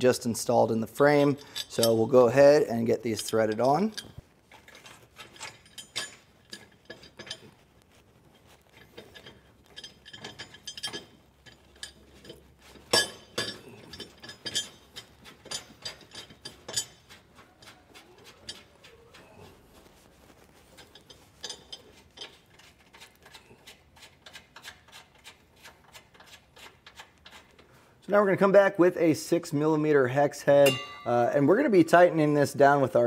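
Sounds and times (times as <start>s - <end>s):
metallic clicks of screws: 8.7s - 18.7s.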